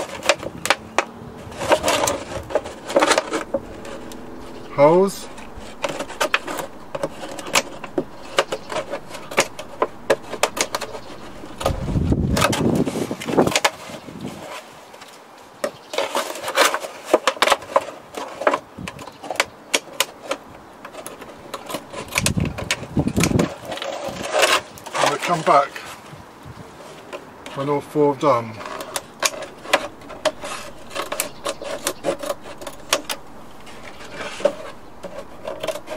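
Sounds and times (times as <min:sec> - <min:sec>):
low rumbling: 0:00.0 - 0:13.5, 0:20.5 - 0:23.5, 0:28.6 - 0:35.9.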